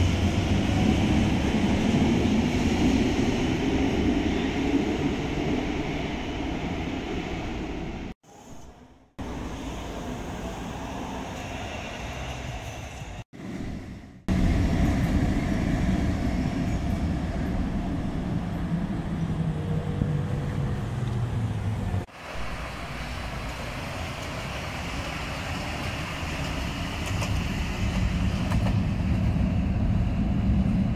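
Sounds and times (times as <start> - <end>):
tram rumbling along track: 0.0 - 30.9
passing road traffic: 14.1 - 30.9.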